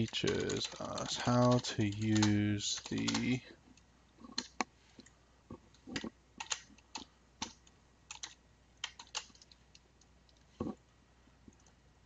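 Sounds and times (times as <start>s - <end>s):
typing on computer keyboard: 0.0s - 3.4s, 5.9s - 9.6s.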